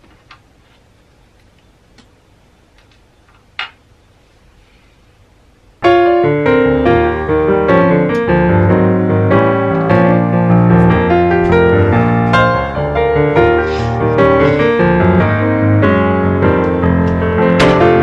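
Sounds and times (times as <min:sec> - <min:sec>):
piano music: 0:05.8 - 0:18.0.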